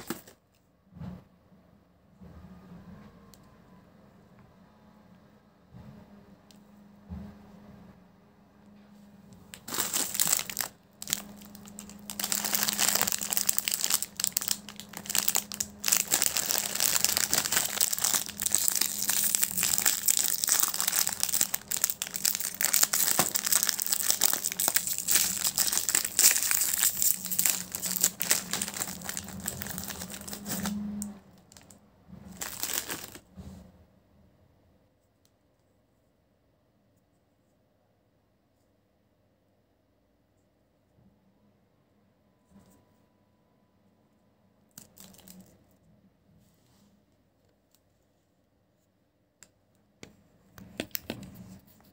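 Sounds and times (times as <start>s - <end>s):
plastic wrapper crinkling: 0.0s - 0.4s, 9.4s - 33.3s, 44.7s - 45.7s.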